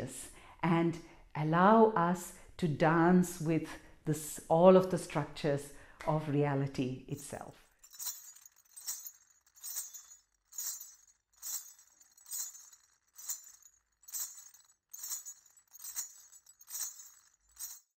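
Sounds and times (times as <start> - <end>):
jingling metallic percussion: 7.8 - 17.9.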